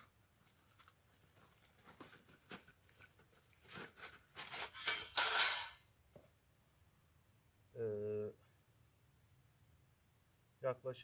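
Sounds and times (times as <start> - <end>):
bag crinkling and rustling: 0.4 - 4.8.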